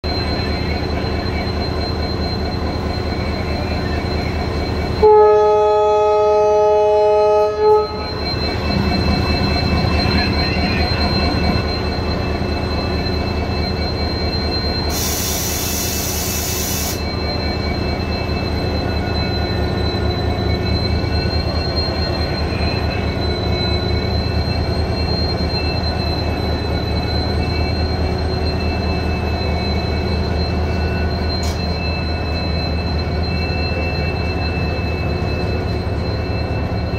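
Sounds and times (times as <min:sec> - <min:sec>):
diesel locomotive engine droning: 0:00.0 - 0:36.9
air hiss: 0:14.9 - 0:17.0.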